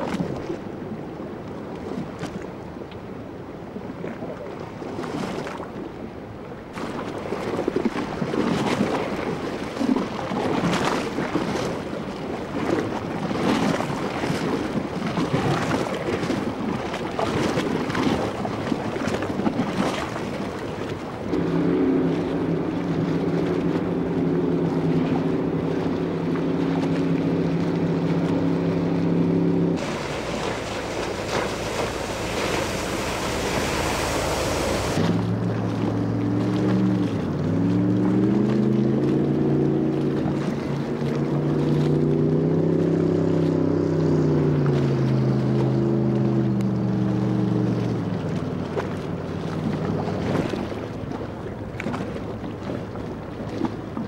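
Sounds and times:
open water: 0.0 - 54.0
wind buffeting microphone: 7.1 - 39.0
engine humming: 21.2 - 50.1.

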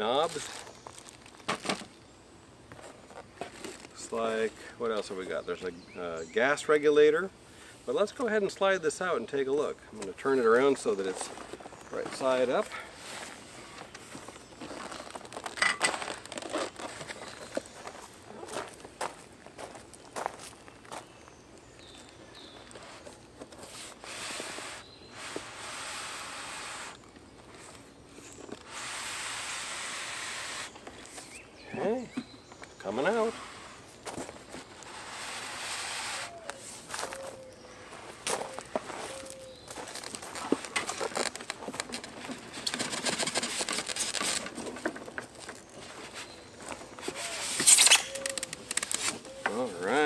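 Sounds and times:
foam scraping against cardboard: 22.8 - 27.0, 28.6 - 31.3, 33.2 - 33.9, 34.6 - 36.8, 42.2 - 44.6, 47.0 - 48.1.

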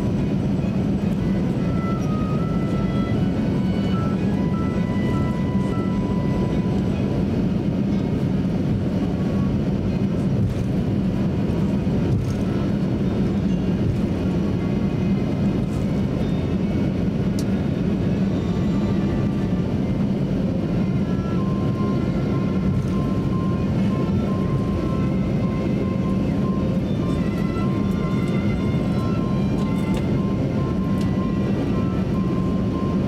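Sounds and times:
aircraft cabin engine rumble: 0.0 - 33.0.

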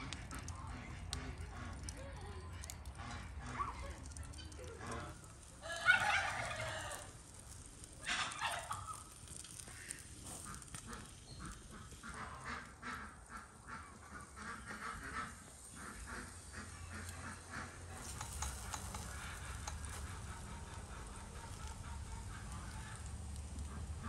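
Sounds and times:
fowl calling: 4.8 - 24.0.

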